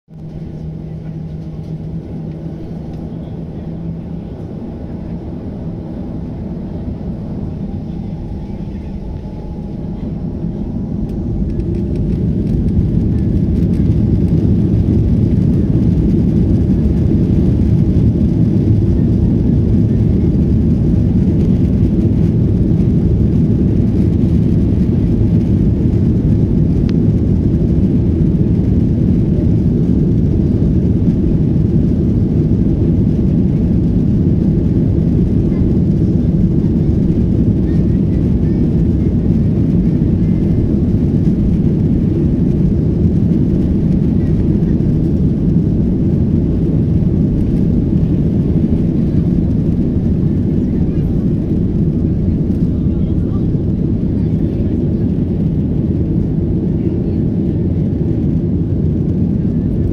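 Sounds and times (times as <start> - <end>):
jet engines rumbling: 0.1 - 59.9.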